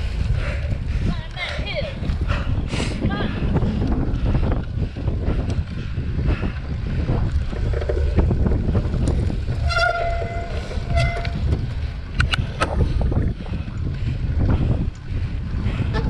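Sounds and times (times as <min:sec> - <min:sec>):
wind buffeting microphone: 0:00.0 - 0:16.0
bike riding over rough grass: 0:07.0 - 0:13.9
sharp clicks: 0:12.1 - 0:12.7.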